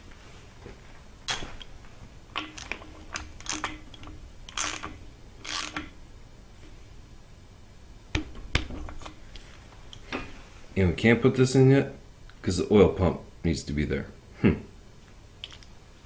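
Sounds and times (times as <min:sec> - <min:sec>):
ratchet wrench clicking: 0:02.4 - 0:05.9.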